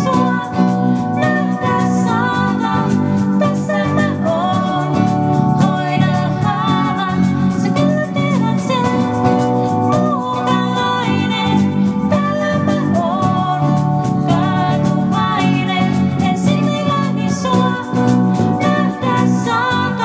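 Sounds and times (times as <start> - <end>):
live band playing gospel song: 0.0 - 20.0.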